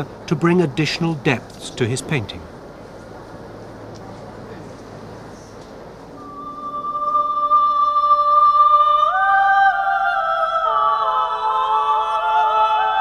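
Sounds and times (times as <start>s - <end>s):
unaccompanied voices in harmony: 6.1s - 13.0s.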